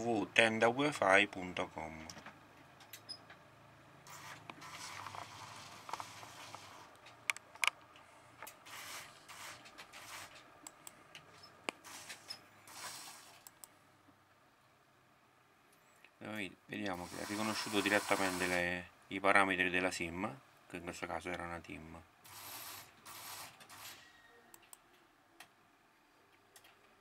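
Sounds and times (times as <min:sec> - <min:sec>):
mouse scraping on desk: 0:04.1 - 0:06.9, 0:08.6 - 0:10.4, 0:11.8 - 0:13.4, 0:17.0 - 0:18.6.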